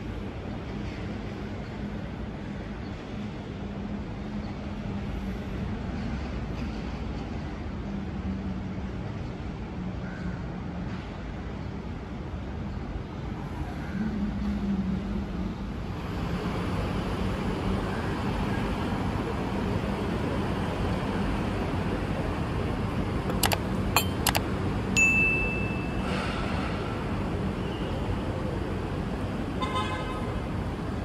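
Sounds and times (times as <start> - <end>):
city traffic noise: 0.0 - 31.0
sharp clicks: 23.3 - 24.5
ding: 23.4 - 24.4, 25.0 - 26.3.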